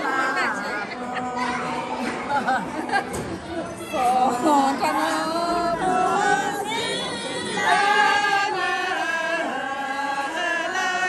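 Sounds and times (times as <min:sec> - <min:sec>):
women singing unaccompanied: 0:04.0 - 0:11.0.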